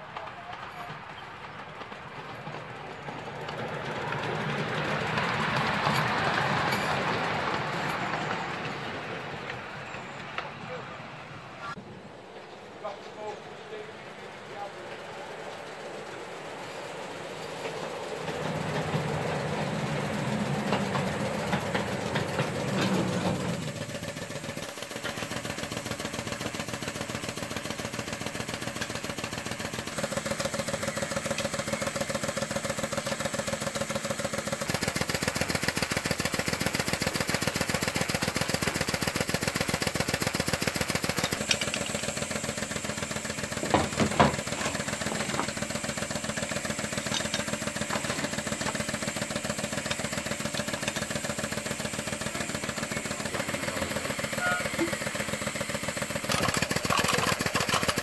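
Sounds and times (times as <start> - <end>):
small engine idling: 0.0 - 58.0
sharp knocks: 43.6 - 45.5.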